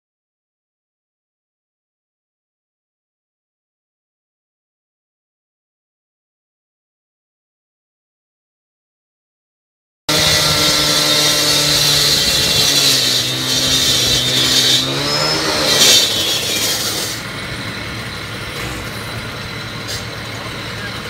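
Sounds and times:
concrete saw engine: 10.1s - 21.0s
saw blade hissing: 10.1s - 21.0s.

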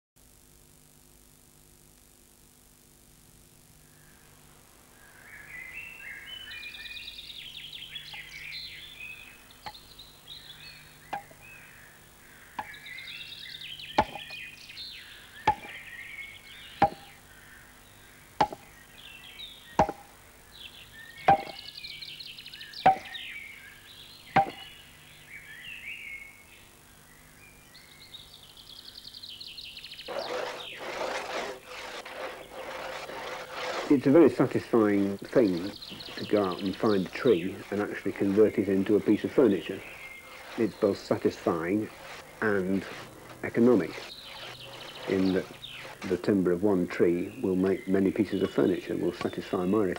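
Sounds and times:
birds chirping and singing: 5.0s - 49.9s
axe chopping wood: 14.0s - 14.4s, 15.5s - 15.8s, 16.8s - 17.2s, 18.4s - 18.7s, 19.8s - 20.1s, 21.3s - 21.6s, 22.9s - 23.2s, 24.4s - 24.7s.

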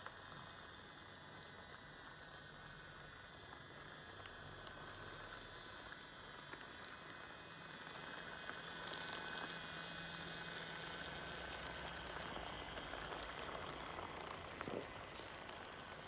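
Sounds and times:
small electric motor whine: 0.0s - 16.0s
toy wheels clicking over track: 3.4s - 16.0s.

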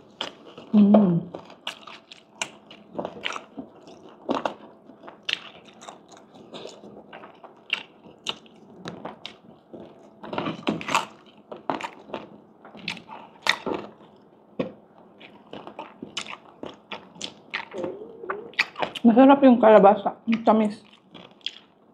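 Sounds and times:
person crunching crispy food: 1.4s - 14.2s, 20.8s - 21.8s.

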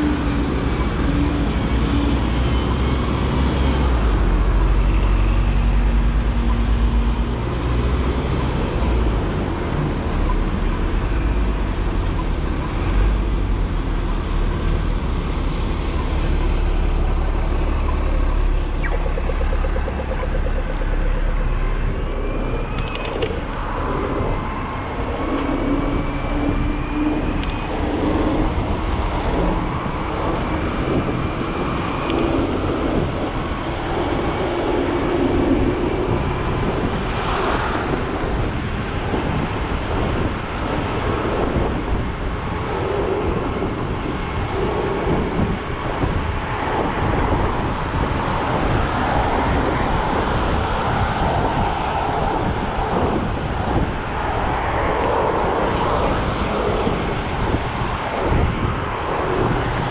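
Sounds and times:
bus rumbling past: 0.0s - 59.9s
wind noise: 0.0s - 59.9s
faint rising whine: 10.0s - 30.9s.

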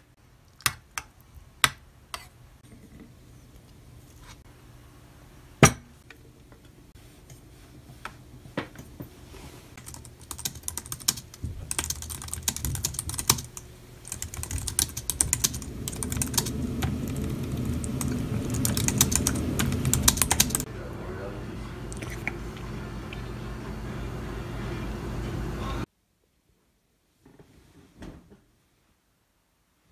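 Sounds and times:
fast typing on thin keyboard: 9.8s - 20.7s.

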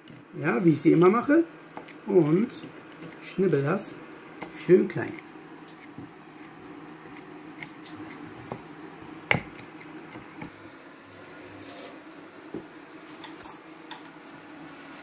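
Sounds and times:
faint steady hum: 0.0s - 15.0s
knife chopping on wooden board: 9.2s - 10.5s.

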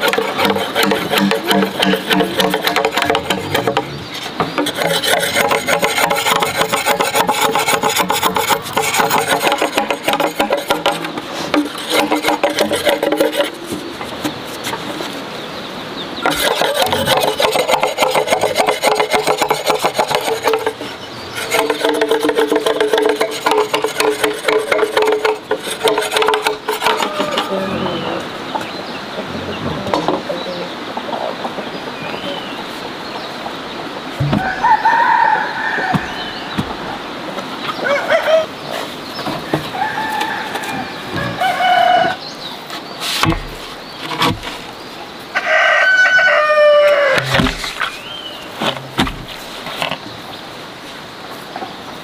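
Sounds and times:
machete scraping bamboo: 0.0s - 15.3s, 16.2s - 27.6s, 42.6s - 44.8s, 46.9s - 50.0s.

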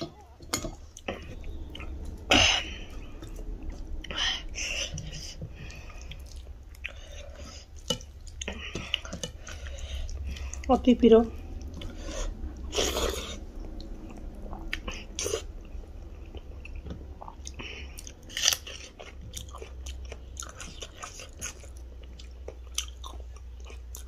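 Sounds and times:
wet chewing and smacking: 0.0s - 24.0s.

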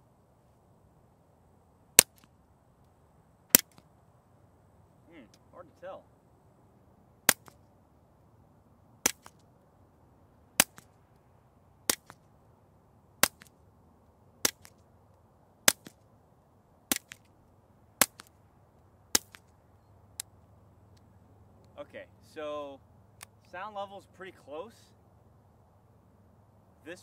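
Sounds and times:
faint second crack: 2.0s - 3.9s
suppressed pistol shots: 3.5s - 3.8s, 7.3s - 7.6s, 9.0s - 9.4s, 10.6s - 11.0s, 11.8s - 12.2s, 15.6s - 16.0s.

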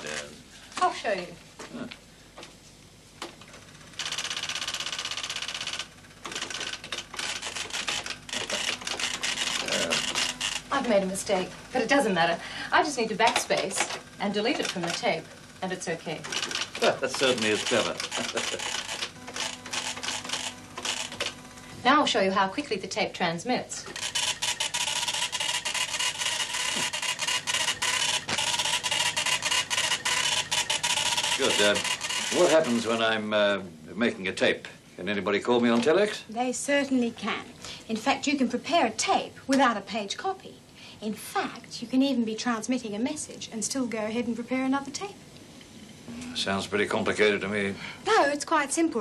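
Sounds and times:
teleprinter keys clicking: 4.0s - 10.6s, 13.3s - 15.1s, 16.2s - 21.3s, 24.0s - 32.8s
teleprinter punching rattle: 4.0s - 11.1s, 13.1s - 15.2s, 16.0s - 21.4s, 23.9s - 33.0s.

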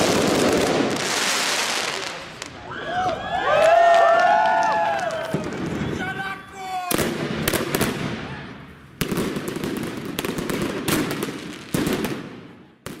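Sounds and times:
firework bangs: 0.0s - 2.6s, 4.6s - 6.2s, 6.9s - 13.0s.

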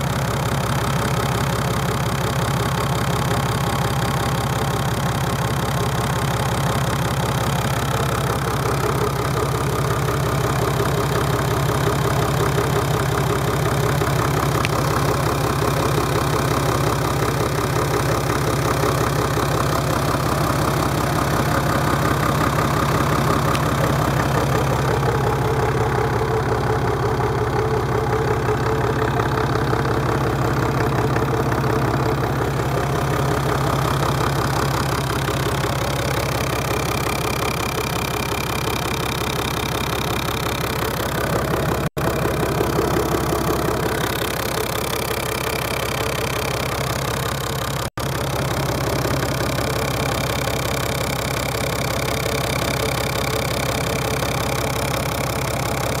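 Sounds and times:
diesel engine idling: 0.0s - 56.0s.

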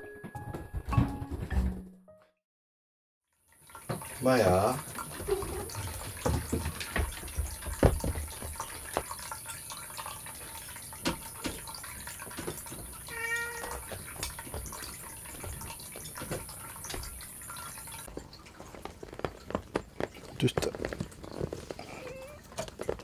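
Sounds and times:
soft knocks and thumps: 5.1s - 9.2s, 13.6s - 17.2s
cat meowing: 13.1s - 13.8s, 21.8s - 22.5s.

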